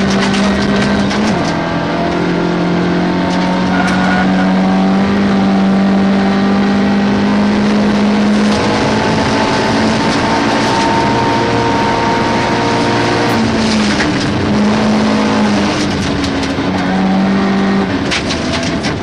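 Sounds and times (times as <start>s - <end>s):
rally car engine revving: 0.0s - 19.0s
gravel rushing under tyres: 13.3s - 17.2s.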